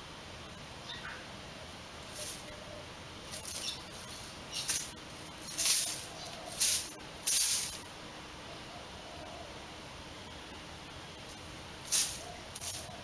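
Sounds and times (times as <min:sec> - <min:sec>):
rabbit scraping sandy soil: 0:02.0 - 0:02.6, 0:03.2 - 0:07.8, 0:11.3 - 0:13.0.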